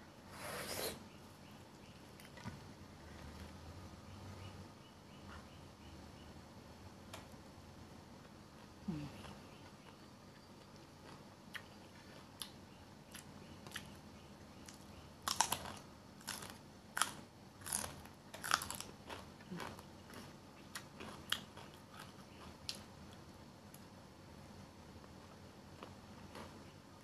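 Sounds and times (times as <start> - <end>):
crunching raw pepper: 14.6 - 22.9.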